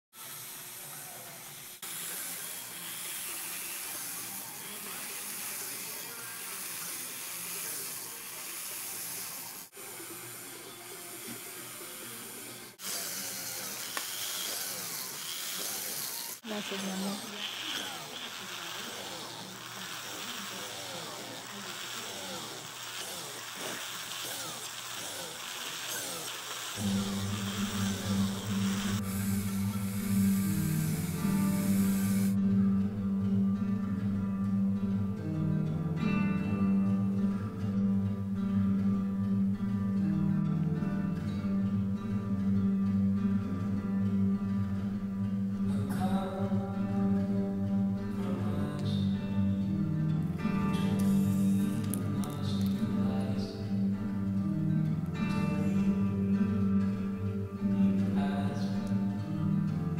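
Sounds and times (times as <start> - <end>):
rotary tool drilling whine: 0.2 - 32.4, 50.8 - 52.0
steady hiss: 18.0 - 32.4.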